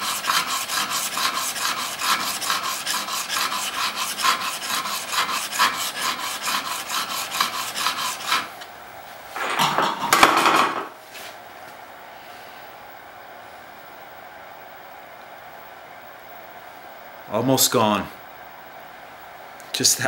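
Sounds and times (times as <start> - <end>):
blade rubbing on sharpening stone: 0.0 - 8.5.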